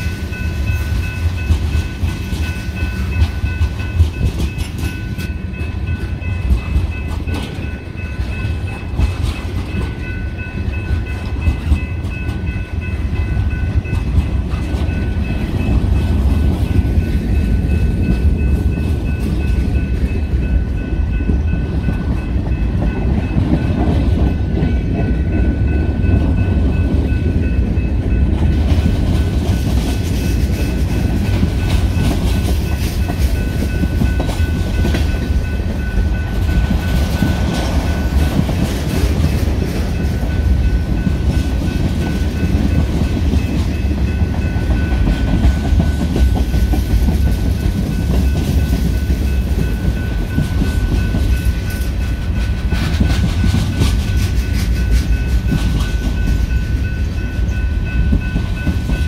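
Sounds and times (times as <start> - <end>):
train wheels rumbling on rails: 0.0 - 59.0
wheels clicking over rail joints: 1.0 - 12.9.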